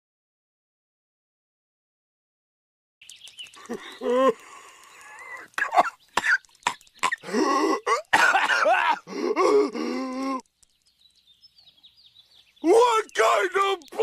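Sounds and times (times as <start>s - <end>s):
person groaning: 3.7s - 4.4s, 7.2s - 10.4s
person coughing and grunting: 5.6s - 10.4s.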